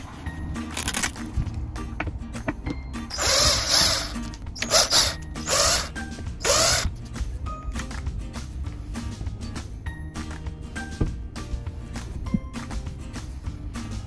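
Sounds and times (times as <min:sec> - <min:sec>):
cordless power driver whirring: 0:03.1 - 0:06.9.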